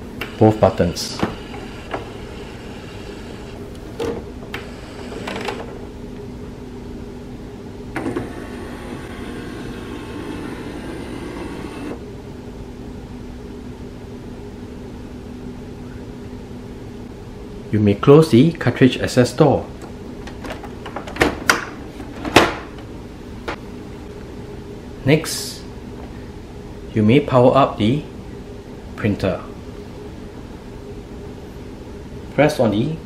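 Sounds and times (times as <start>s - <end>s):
steady low hum: 0.0s - 33.0s
printer mechanism running: 0.1s - 5.8s, 7.9s - 12.0s.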